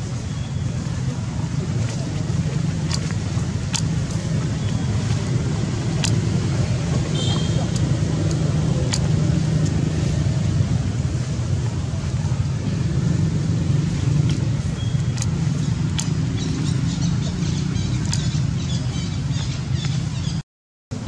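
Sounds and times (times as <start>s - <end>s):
steady low rumble: 0.0s - 20.3s.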